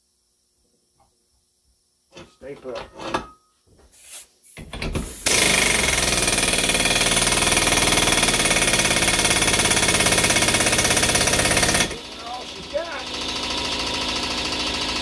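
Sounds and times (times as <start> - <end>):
pneumatic impact wrench hammering: 4.0 - 15.0.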